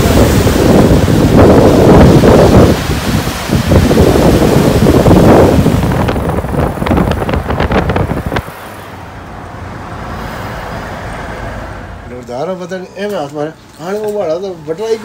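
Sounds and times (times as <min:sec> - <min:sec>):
waves breaking on rocks: 0:00.0 - 0:08.8
wind buffeting microphone: 0:00.0 - 0:10.0
car cabin road noise: 0:00.0 - 0:15.0.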